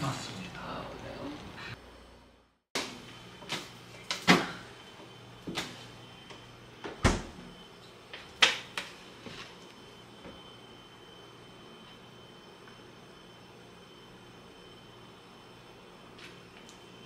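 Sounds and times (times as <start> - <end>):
refrigerator door opening and shutting: 6.8 - 7.6.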